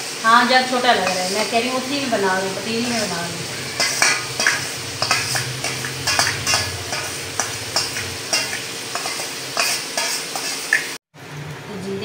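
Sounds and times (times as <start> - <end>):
metallic scrapes and knocks on pot: 1.0 - 1.3, 2.9 - 10.9.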